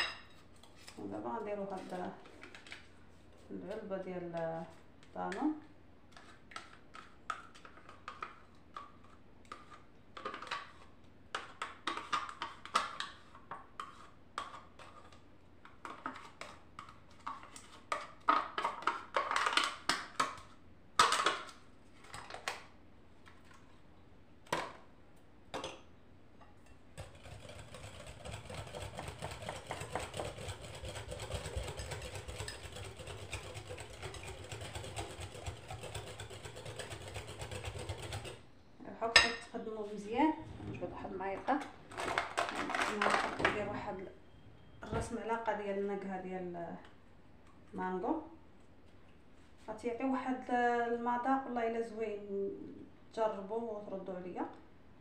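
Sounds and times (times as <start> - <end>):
hand whisk beating batter: 27.0 - 38.4.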